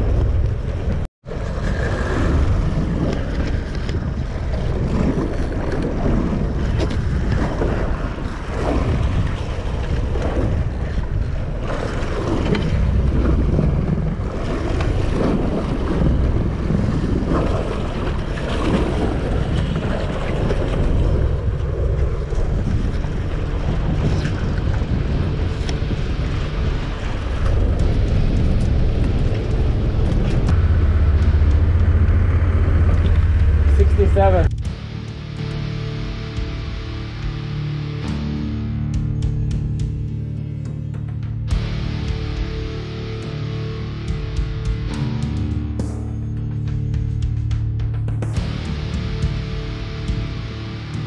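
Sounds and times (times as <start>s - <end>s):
wind buffeting microphone: 0.0s - 37.4s
sea water washing against hull: 0.0s - 38.1s.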